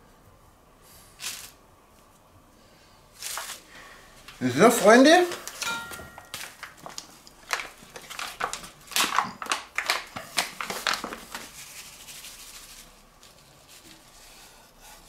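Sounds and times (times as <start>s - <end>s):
paper bag crinkling: 3.2s - 3.7s, 4.4s - 14.1s
rub shaken onto meat: 11.4s - 14.0s.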